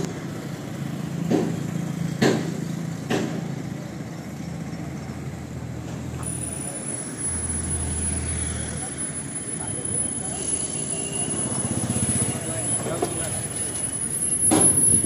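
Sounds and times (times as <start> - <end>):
tractor diesel engine idling: 0.0 - 15.0
sharp knocks: 1.2 - 3.5.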